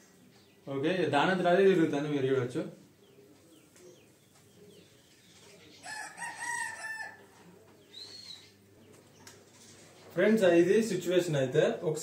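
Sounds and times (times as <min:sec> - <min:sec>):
faint bird chirps: 0:02.9 - 0:10.2
rooster crowing: 0:05.8 - 0:07.4.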